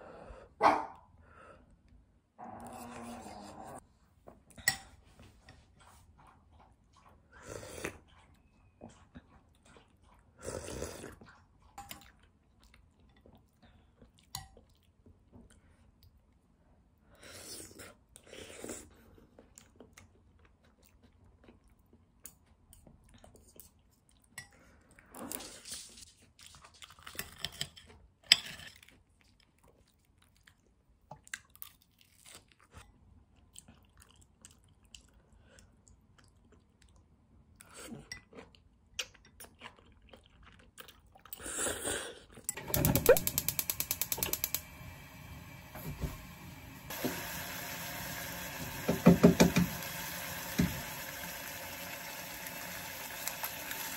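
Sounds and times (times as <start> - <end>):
person chewing: 33.4 - 42.5
gas stove igniter clicking: 42.6 - 47.3.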